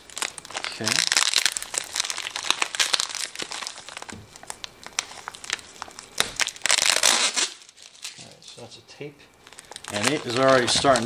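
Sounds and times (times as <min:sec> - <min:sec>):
plastic wrap crinkling: 0:00.0 - 0:08.6, 0:09.4 - 0:11.0.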